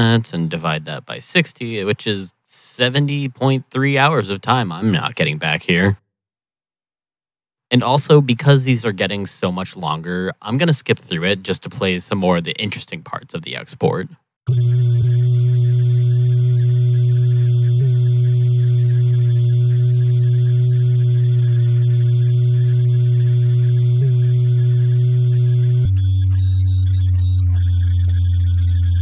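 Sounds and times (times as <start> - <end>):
crackling static: 14.5 - 29.0
distorted low drone: 14.5 - 29.0.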